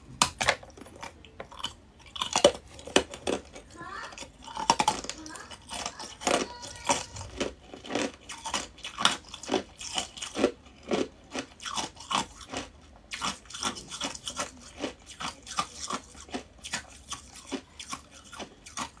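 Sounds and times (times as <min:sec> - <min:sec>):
person crunching ice: 0:04.4 - 0:19.0.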